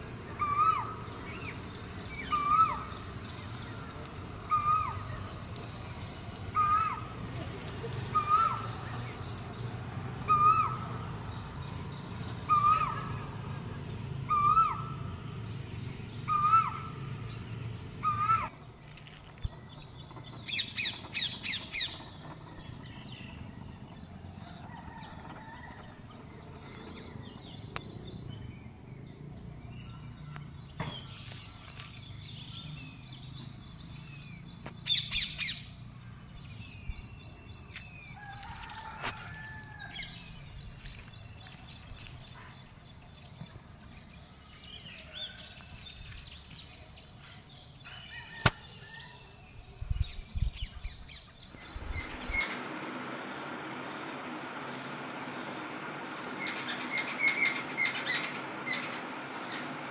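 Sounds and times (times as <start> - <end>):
bird calling: 0.3 - 9.5, 10.2 - 18.6, 51.3 - 59.9
rapid high chirps: 51.5 - 59.9.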